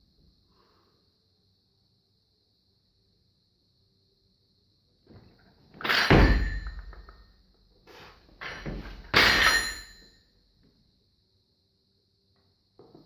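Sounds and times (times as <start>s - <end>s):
barbell thunking on floor: 5.8s - 7.1s.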